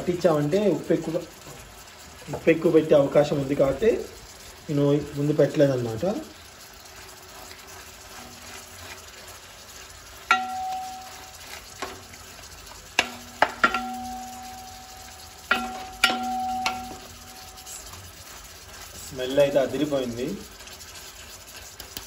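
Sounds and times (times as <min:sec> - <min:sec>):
fish sizzling in oil: 0:00.0 - 0:22.0
spatula knocking against metal pot: 0:10.3 - 0:11.2, 0:13.0 - 0:17.7.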